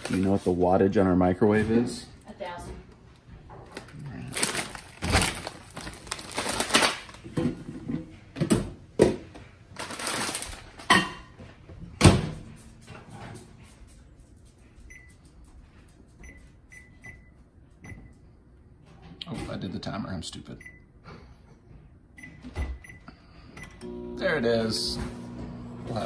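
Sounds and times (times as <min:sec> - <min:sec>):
microwave keypad beeps: 0:22.2 - 0:23.0.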